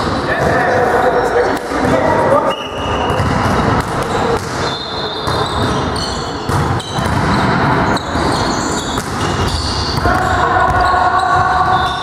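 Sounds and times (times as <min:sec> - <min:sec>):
players' voices and movement: 0:00.0 - 0:12.0
ball bouncing on floor: 0:03.1 - 0:04.6, 0:06.5 - 0:07.4.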